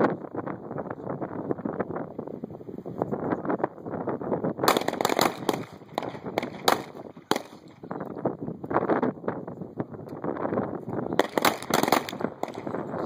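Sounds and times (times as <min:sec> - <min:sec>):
wind noise on microphone: 0:00.0 - 0:13.0
pistol shots: 0:04.6 - 0:07.8, 0:11.2 - 0:12.9.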